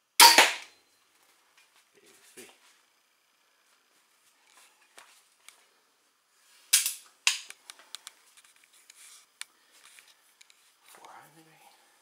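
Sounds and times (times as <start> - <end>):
bolt striking target: 0.2 - 0.7.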